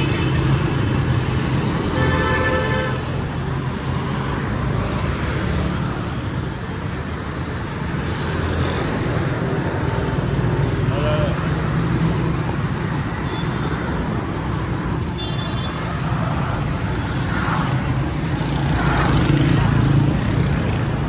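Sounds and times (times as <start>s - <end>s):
traffic engines running: 0.0s - 21.0s
vehicle horn: 1.9s - 3.1s.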